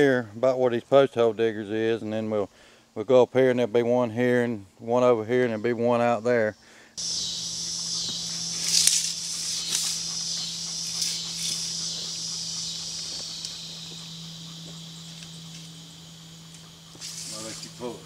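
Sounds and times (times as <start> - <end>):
high-pitched insect chorus: 6.5 - 18.0
low steady hum: 7.0 - 18.0.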